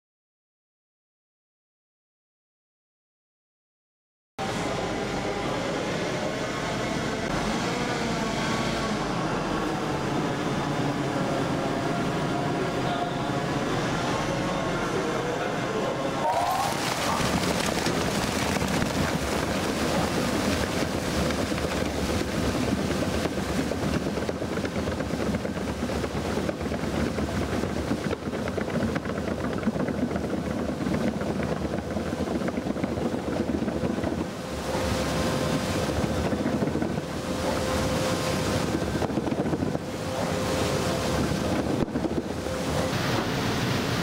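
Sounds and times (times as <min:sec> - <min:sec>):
shredder tearing plastic film: 0:16.3 - 0:19.1.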